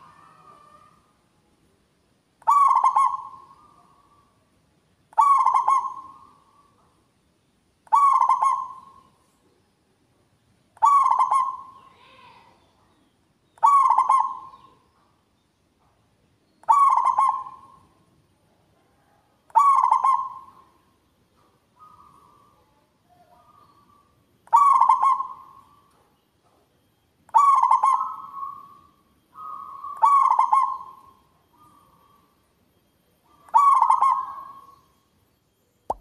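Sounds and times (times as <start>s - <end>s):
dove cooing: 0.0s - 1.0s, 2.4s - 4.3s, 5.1s - 6.8s, 7.9s - 9.1s, 10.8s - 11.8s, 13.6s - 14.8s, 16.6s - 17.9s, 18.8s - 20.8s, 21.8s - 26.1s, 27.3s - 32.4s, 33.3s - 34.9s.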